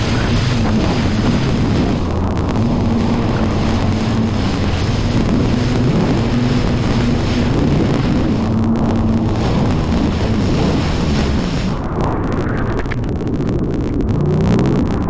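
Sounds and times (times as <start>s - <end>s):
jet ski engine droning: 0.0s - 15.0s
water rushing: 0.0s - 15.0s
wind on microphone: 0.0s - 15.0s.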